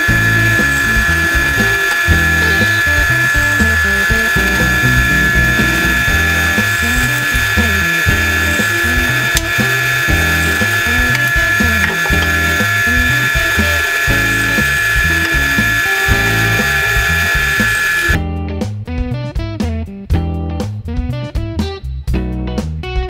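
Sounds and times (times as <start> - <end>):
drill bit boring wood: 0.0 - 18.2
drill press motor whine: 0.0 - 18.2
background music with bass line: 0.0 - 23.0.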